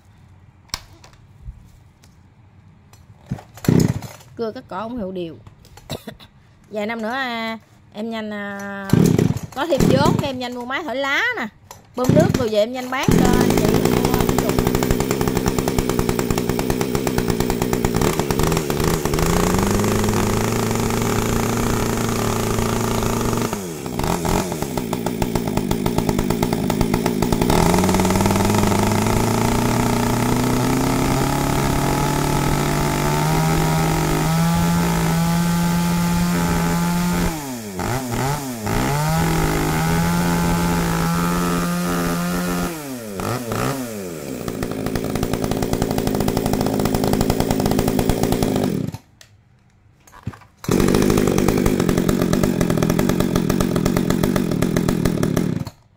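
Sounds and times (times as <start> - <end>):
chainsaw engine revving: 3.3 - 4.2, 8.9 - 10.6, 12.0 - 49.1, 50.6 - 55.8.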